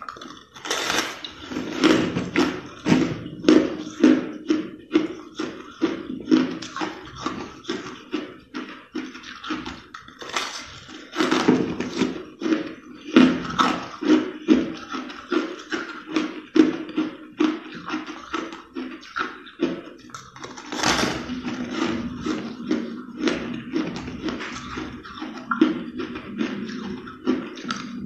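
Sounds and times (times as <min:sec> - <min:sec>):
crushed ice crunching when chewed: 0:00.0 - 0:28.0.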